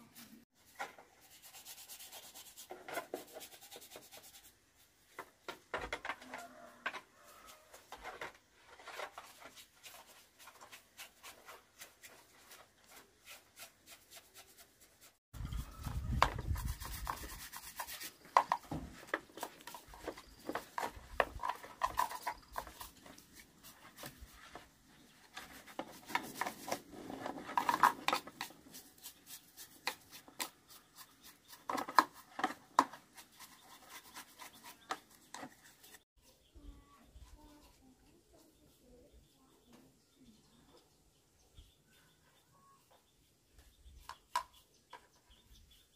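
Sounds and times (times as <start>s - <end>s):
rubbing and handling of parts: 0.0s - 36.0s
brush scrubbing plastic: 8.6s - 36.0s.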